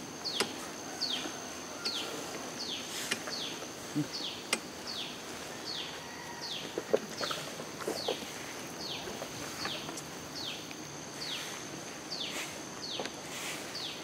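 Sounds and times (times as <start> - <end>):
high-pitched insect drone: 0.0 - 14.0.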